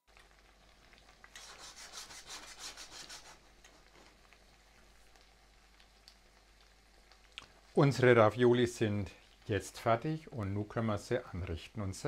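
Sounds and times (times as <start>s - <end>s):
butter sizzling in a wok: 0.0s - 12.0s
rhythmic rasping rub: 1.4s - 3.4s.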